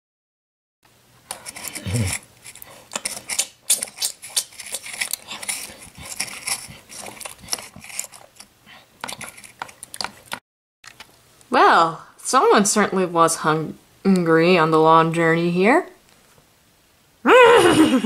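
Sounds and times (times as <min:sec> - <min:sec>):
toy scraping through dry flakes: 0:01.3 - 0:09.8.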